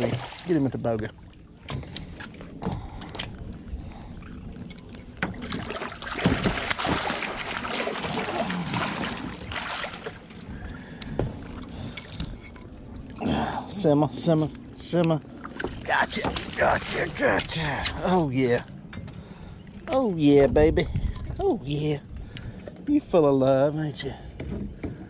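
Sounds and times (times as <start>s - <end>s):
fish splashing at water surface: 5.5s - 10.3s.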